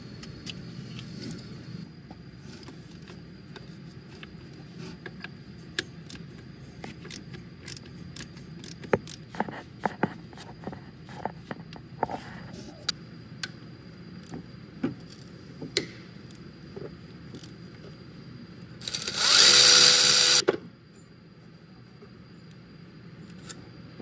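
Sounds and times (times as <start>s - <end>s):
power tool running: 18.8s - 20.4s.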